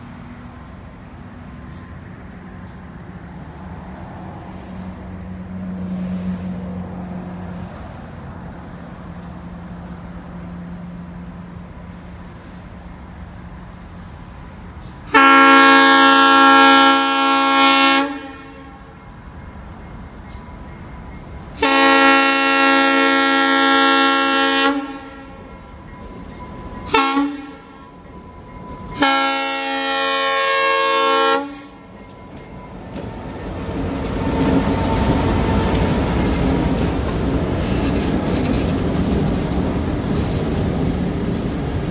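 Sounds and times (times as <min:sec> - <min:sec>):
train rumbling on rails: 0:00.0 - 0:41.9
locomotive air horn blasts: 0:15.0 - 0:19.2, 0:21.6 - 0:25.8, 0:26.8 - 0:28.0, 0:28.8 - 0:32.1, 0:32.9 - 0:36.3.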